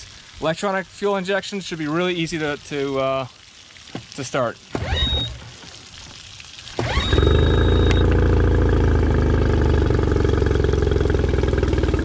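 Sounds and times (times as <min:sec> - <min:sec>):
outboard motor pull-start: 0:04.7 - 0:05.6, 0:06.7 - 0:12.0
high beep: 0:04.9 - 0:05.4, 0:06.9 - 0:08.1
outboard motor idling: 0:06.8 - 0:12.0.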